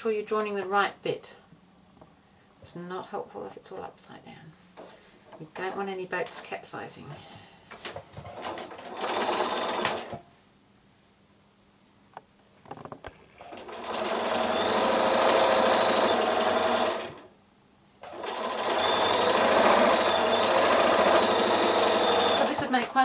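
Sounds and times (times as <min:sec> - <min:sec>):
sewing machine stitching: 0:08.3 - 0:10.2, 0:13.4 - 0:17.3, 0:18.0 - 0:23.0.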